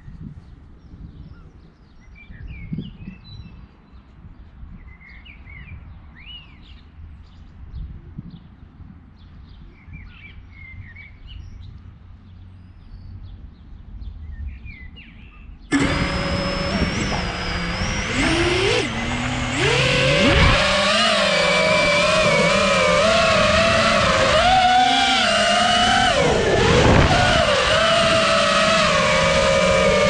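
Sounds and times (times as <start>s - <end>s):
quadcopter motors whining: 15.7s - 30.0s.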